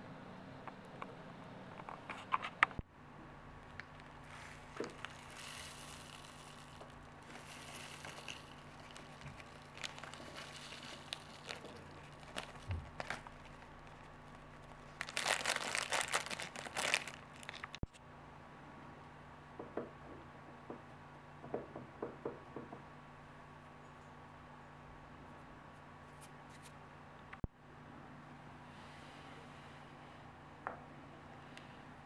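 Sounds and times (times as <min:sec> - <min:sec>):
plastic bag crinkling: 0:03.8 - 0:17.9.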